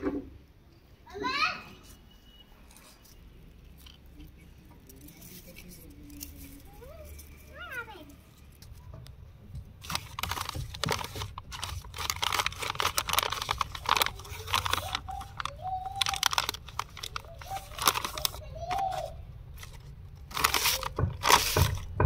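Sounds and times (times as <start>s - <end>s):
plastic packets crinkling: 2.8s - 7.6s, 9.7s - 22.0s.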